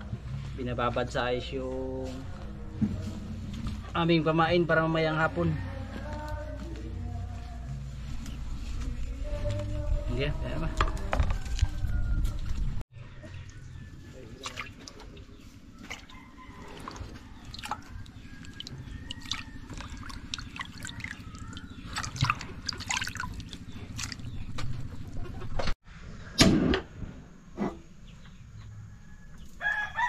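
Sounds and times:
steady low hum: 12.7 - 26.2
small drips and sloshes: 13.2 - 25.3
water splashing in a basin: 13.4 - 25.2.

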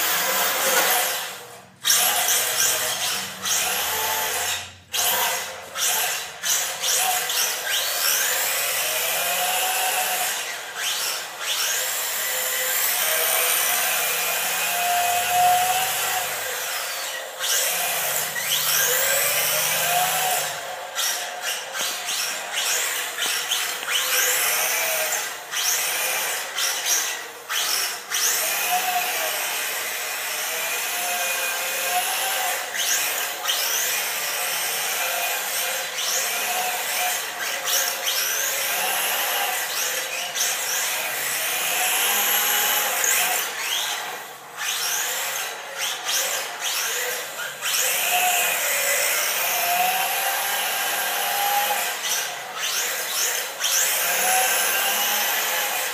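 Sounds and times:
electric motor whining: 0.0 - 55.9.

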